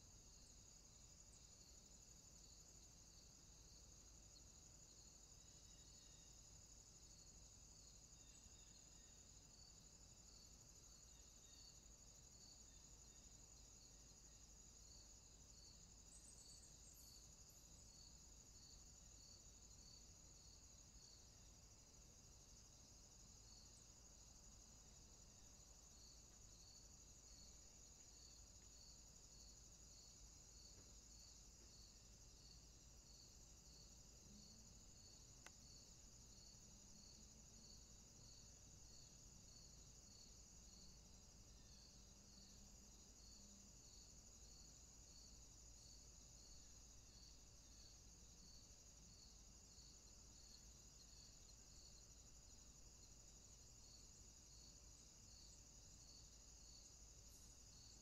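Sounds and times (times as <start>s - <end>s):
faint click: 35.4s - 35.7s.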